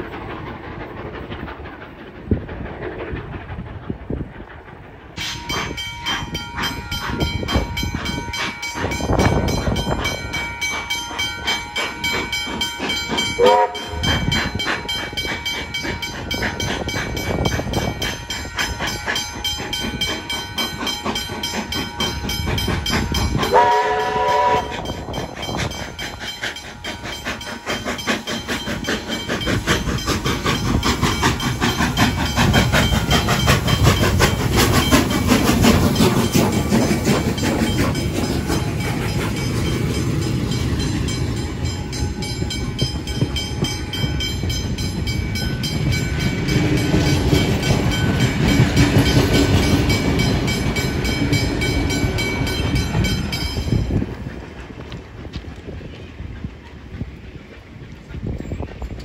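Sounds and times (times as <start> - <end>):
steam train running: 0.0 - 59.0
train whistle blasts: 13.4 - 14.0, 23.4 - 24.9.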